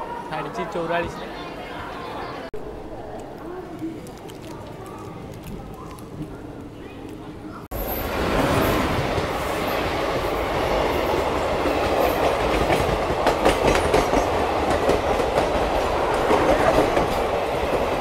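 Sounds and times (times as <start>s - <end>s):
train wheels rumbling on rail: 7.8s - 18.0s.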